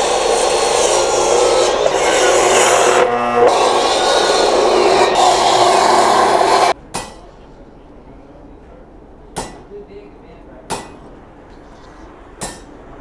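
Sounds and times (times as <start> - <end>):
saw cutting wood: 0.0 - 6.8.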